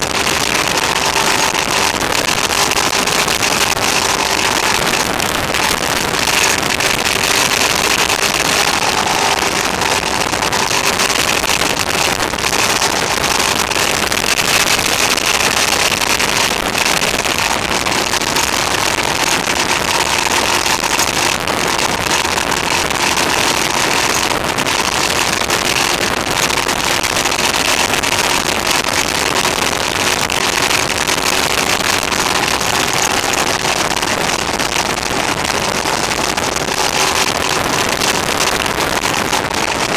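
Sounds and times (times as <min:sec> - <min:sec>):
motorcycle engine drone: 0:00.0 - 0:39.9
wind rushing over microphone: 0:00.0 - 0:39.9.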